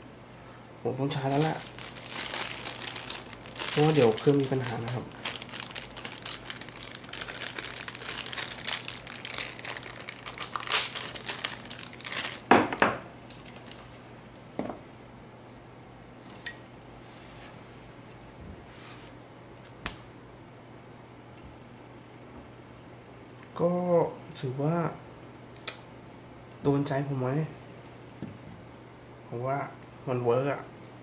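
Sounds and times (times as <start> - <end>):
crinkling and rustling: 1.1 - 14.0.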